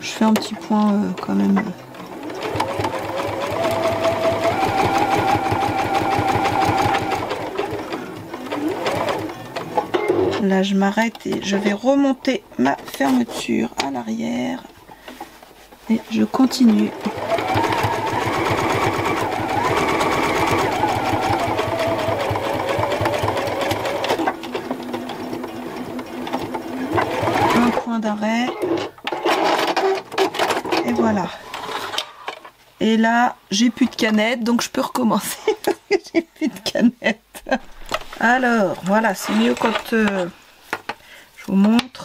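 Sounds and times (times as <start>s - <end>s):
sewing machine stitching: 0.2s - 10.5s, 16.4s - 27.9s, 28.5s - 32.0s, 37.7s - 40.4s.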